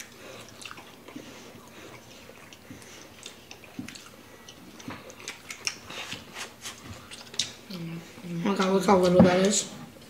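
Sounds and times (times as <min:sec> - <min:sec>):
chewing with mouth clicks: 0:00.0 - 0:08.0.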